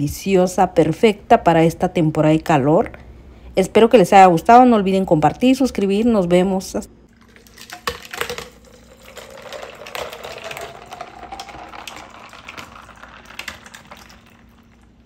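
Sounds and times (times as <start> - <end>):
liquid pouring into glass jar: 7.1 - 15.0
ice cubes clicking and crackling: 7.2 - 14.9.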